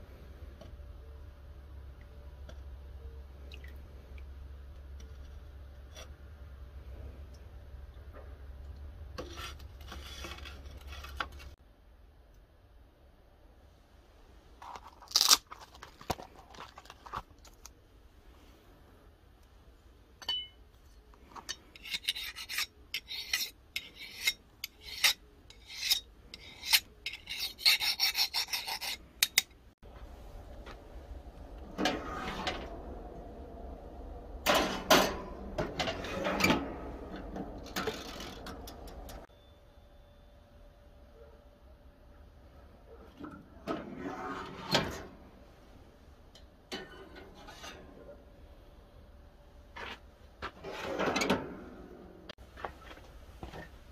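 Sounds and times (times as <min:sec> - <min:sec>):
file rasping on steel blade: 0:21.8 - 0:29.5
steady low hum: 0:29.8 - 0:42.9.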